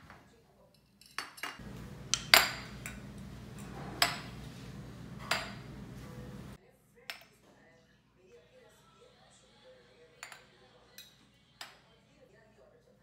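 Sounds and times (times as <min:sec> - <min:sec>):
hard objects clinking and knocking: 0:00.9 - 0:06.0
steady low hum: 0:01.6 - 0:06.6.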